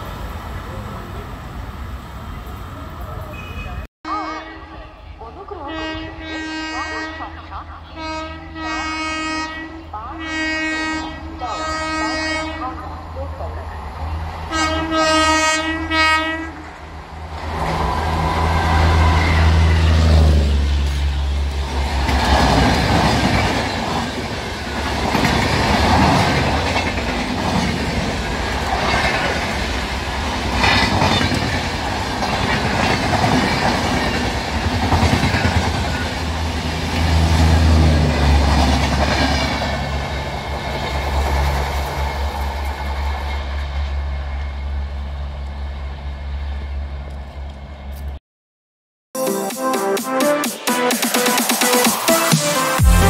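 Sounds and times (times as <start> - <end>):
train horn blast: 3.3 - 5.0, 5.7 - 7.4, 8.0 - 12.8, 14.5 - 16.7
train wheels rattling clickety-clack: 22.0 - 29.7, 30.5 - 36.2.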